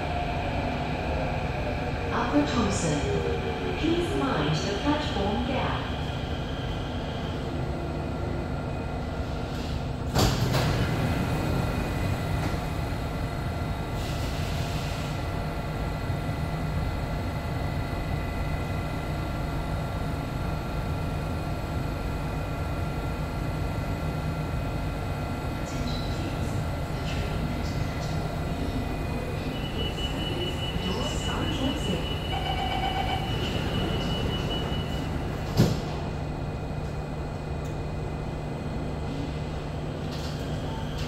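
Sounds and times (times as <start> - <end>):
train hum: 0.0 - 41.0
train doors shutting: 9.2 - 12.9, 25.7 - 36.2, 40.0 - 41.0.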